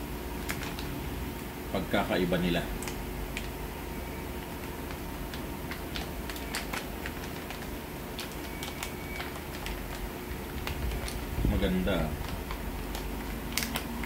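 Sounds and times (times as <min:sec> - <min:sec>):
faint hum: 0:00.0 - 0:14.0
plastic bag crinkling: 0:00.4 - 0:01.0, 0:04.4 - 0:14.0.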